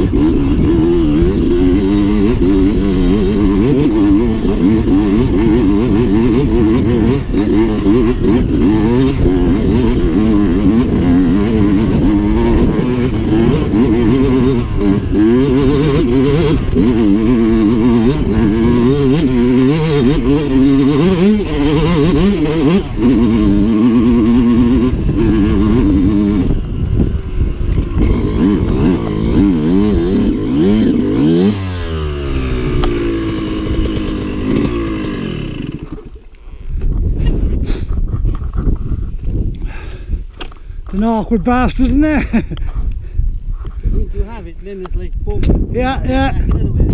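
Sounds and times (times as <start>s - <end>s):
dirt bike engine revving: 0.0s - 36.8s.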